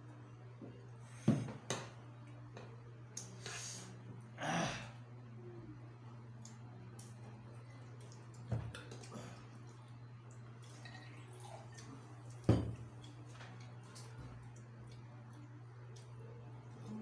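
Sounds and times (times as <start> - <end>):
steady low hum: 0.0 - 17.0
glass bottle knocking on table: 12.5 - 12.8.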